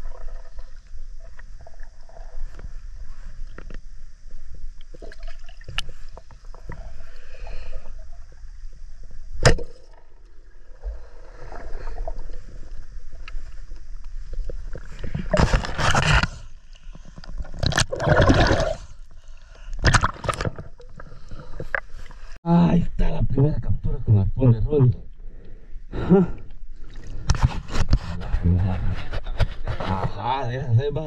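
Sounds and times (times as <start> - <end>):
underwater clicks: 17.2 - 18.6
rushing gurgling water: 17.5 - 18.9.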